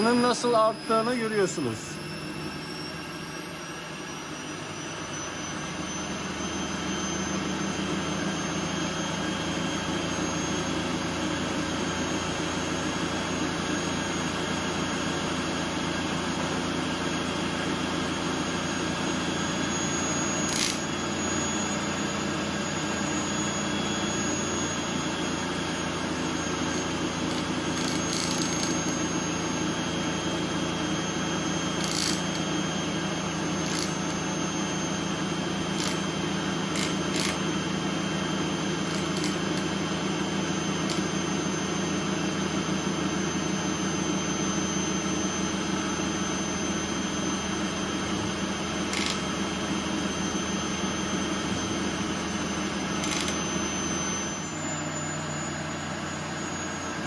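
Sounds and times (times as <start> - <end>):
spinning magnet disk drone: 0.0 - 2.0, 19.4 - 22.0, 23.3 - 42.9, 48.7 - 50.2, 52.8 - 54.2
sharp clicks: 53.0 - 53.4.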